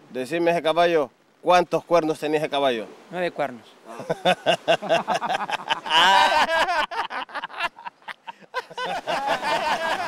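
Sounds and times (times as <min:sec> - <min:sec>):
man laughing hard: 0:03.9 - 0:10.0.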